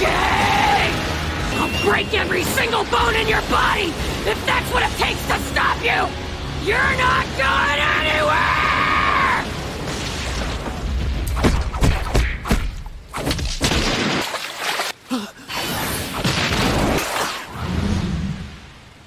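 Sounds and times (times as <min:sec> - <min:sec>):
punch and kick impacts: 0:11.2 - 0:14.3.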